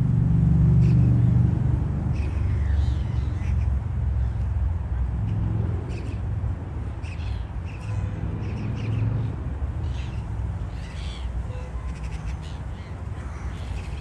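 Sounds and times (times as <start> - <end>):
gulls calling: 7.0 - 14.0.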